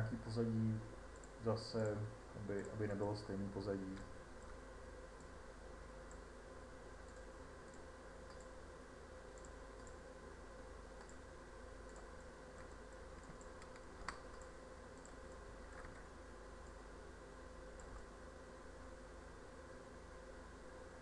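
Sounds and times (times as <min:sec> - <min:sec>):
low electrical hum: 0:00.0 - 0:21.0
computer mouse and keyboard clicks: 0:07.0 - 0:08.6, 0:09.3 - 0:10.0, 0:11.0 - 0:11.2, 0:11.8 - 0:16.0, 0:17.8 - 0:18.1.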